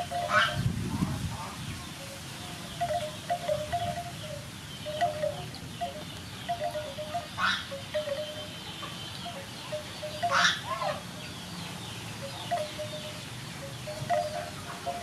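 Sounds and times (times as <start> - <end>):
chime-like tinkling: 0.0 - 0.6, 2.8 - 10.4, 12.3 - 13.2, 13.9 - 15.0
chicken calling: 0.0 - 11.1, 12.2 - 15.0.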